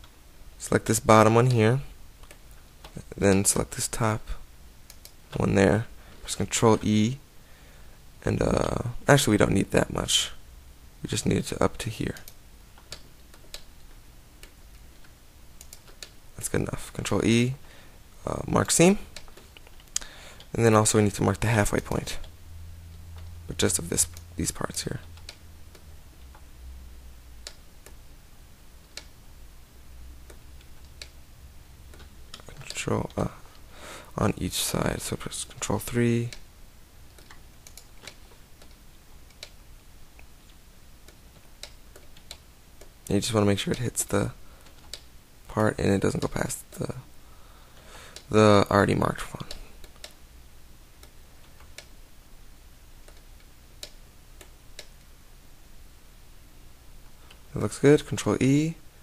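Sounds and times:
low steady hum: 0.0s - 59.0s
computer mouse clicks: 4.9s - 5.4s, 12.1s - 16.2s, 24.0s - 26.5s, 27.4s - 28.0s, 28.8s - 29.2s, 30.2s - 31.2s, 31.9s - 32.8s, 37.1s - 39.6s, 40.2s - 42.9s, 44.6s - 45.1s, 49.4s - 50.2s, 53.0s - 55.1s.

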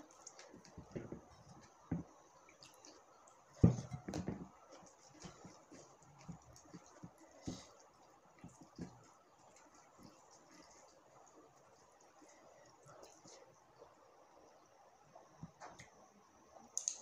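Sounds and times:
chewing and mouth sounds: 0.0s - 13.4s
fingers mixing rice on plate: 0.0s - 13.9s.

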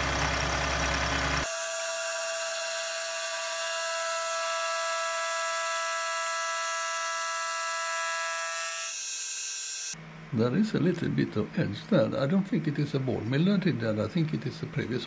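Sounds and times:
milling machine high-pitched whine: 1.2s - 10.0s.

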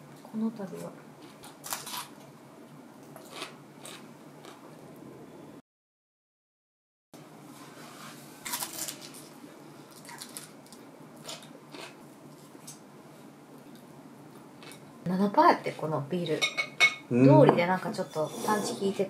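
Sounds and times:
food crunching: 1.2s - 2.3s, 3.0s - 4.8s, 8.4s - 12.8s, 13.6s - 14.9s.

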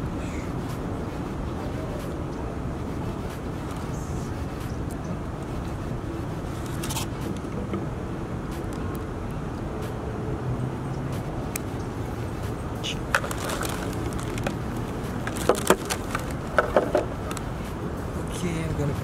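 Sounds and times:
background traffic noise: 0.0s - 19.0s
microphone handling clicks and knocks: 15.2s - 17.5s.

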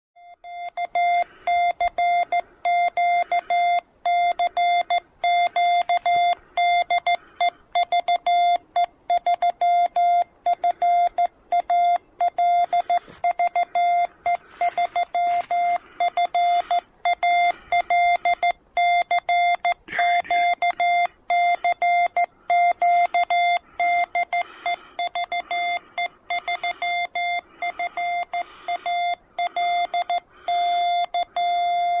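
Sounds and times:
morse code beeps: 0.2s - 32.0s
faint radio band hiss: 12.5s - 18.2s.

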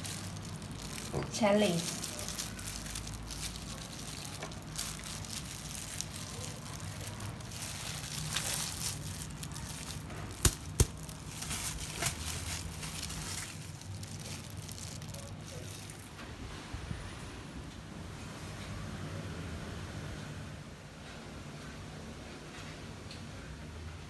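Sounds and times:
plastic glove crinkling: 0.0s - 16.2s
salad leaves rustling: 0.0s - 16.2s.

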